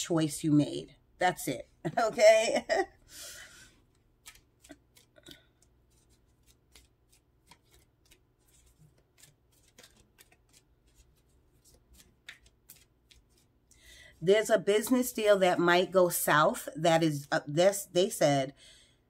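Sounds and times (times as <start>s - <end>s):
cards being shuffled: 3.9s - 13.6s.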